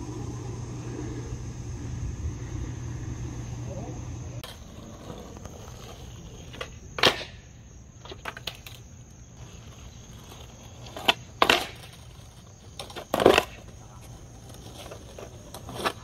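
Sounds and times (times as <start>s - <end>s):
skateboard clacking on asphalt: 4.4s - 16.0s.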